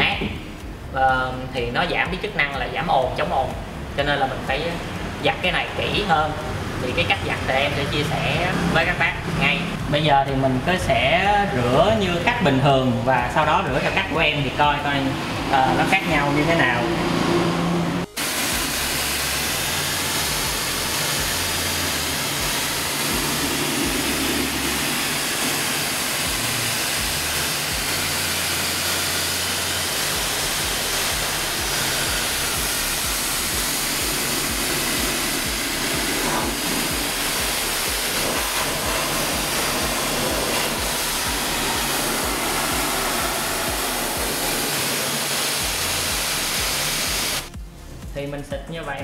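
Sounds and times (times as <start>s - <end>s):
water jet spraying: 4.1s - 47.6s.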